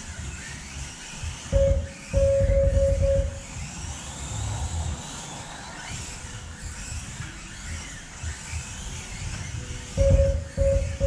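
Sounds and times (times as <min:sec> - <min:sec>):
toy car electric motors whining: 0:00.0 - 0:11.0.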